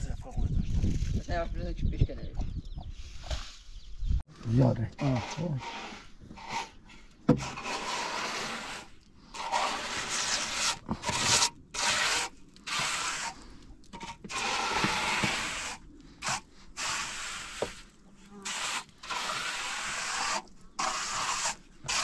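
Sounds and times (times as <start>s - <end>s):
trowel scraping wet cement: 5.0s - 22.0s.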